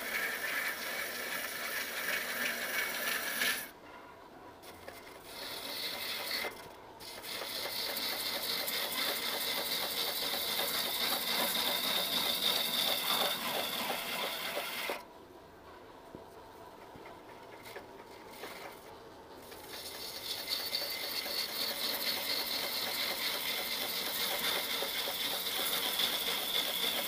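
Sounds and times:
lathe tool shaving wood: 0.0 - 3.7, 5.2 - 15.0, 19.5 - 27.0.

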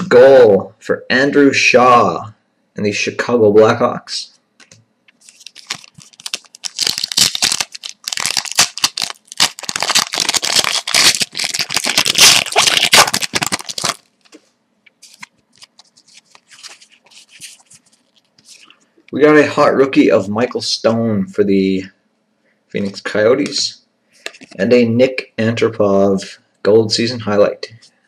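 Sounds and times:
cards rustling: 4.6 - 14.4, 15.0 - 18.8
wrapper tearing and crinkling: 5.2 - 14.3, 15.0 - 18.6.

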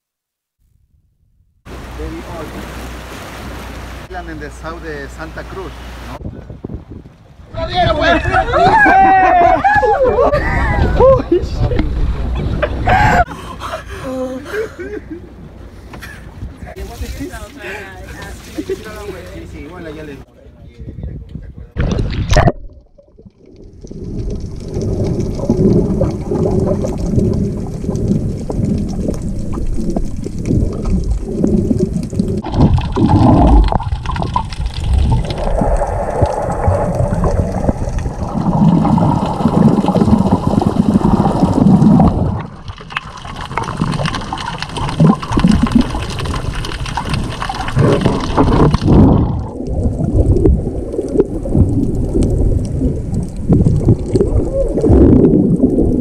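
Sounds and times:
underwater water sloshing: 1.7 - 6.2, 21.8 - 56.0.

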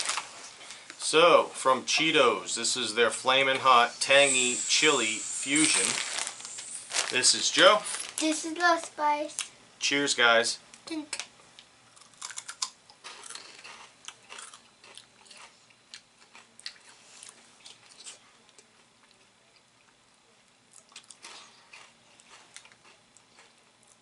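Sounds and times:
people crunching snacks: 0.0 - 0.8, 4.5 - 8.4, 12.0 - 19.3, 20.7 - 24.0.

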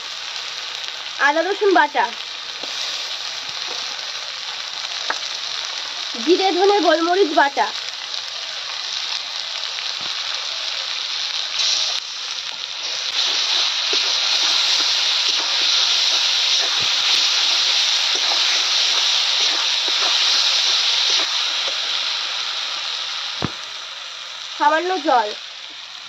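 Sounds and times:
onions sizzling in hot oil: 0.0 - 26.0
metal spatula stirring: 12.8 - 21.3.

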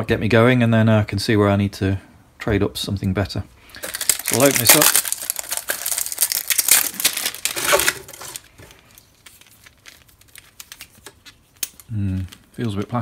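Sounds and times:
plastic bag crinkling: 3.7 - 13.0
hose clicks and rustles: 3.8 - 13.0.

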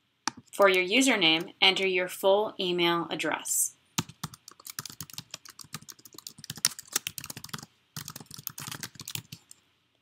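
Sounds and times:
computer keyboard typing: 4.0 - 9.6.

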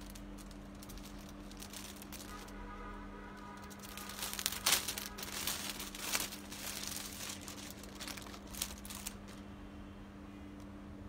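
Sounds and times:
plastic packaging crinkling: 0.0 - 2.7, 3.4 - 9.5
steady low hum: 0.0 - 11.0.

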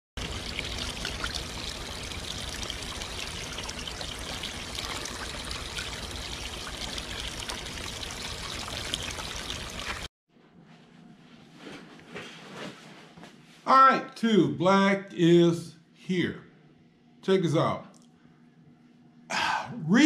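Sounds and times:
running trickling water: 0.2 - 10.1.

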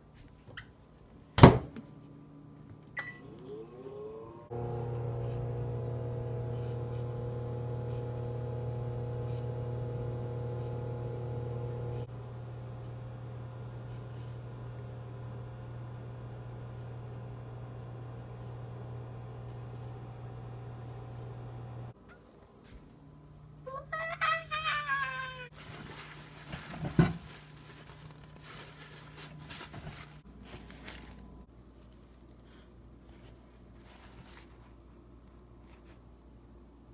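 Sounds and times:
microwave oven humming: 2.2 - 22.0
cloth rubbing and rustling: 25.5 - 32.2, 33.0 - 34.8.

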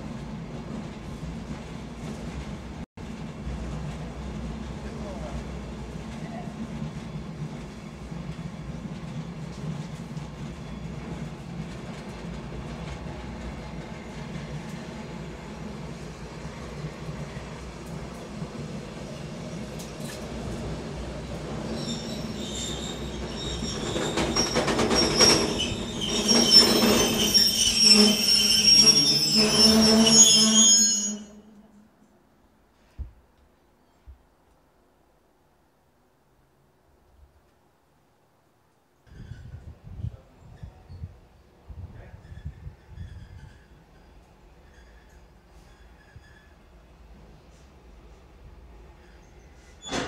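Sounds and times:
train wheels rumbling on rails: 0.0 - 30.2
train clanking: 0.1 - 30.2
high-pitched wheel squeals: 21.7 - 31.6, 42.2 - 46.6.

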